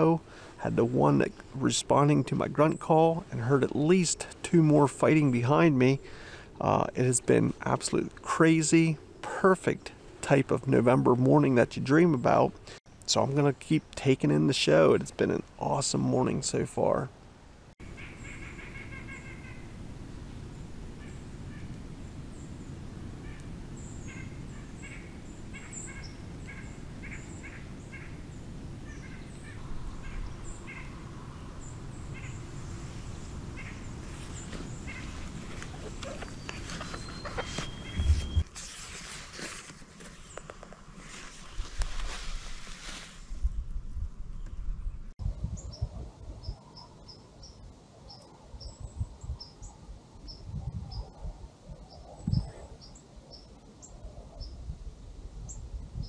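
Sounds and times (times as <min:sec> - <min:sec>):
birds calling: 0:17.8 - 0:38.4
songbird chirping: 0:17.8 - 0:38.5
wind rumbling on microphone: 0:17.8 - 0:39.3, 0:40.2 - 0:47.8, 0:48.4 - 0:56.0.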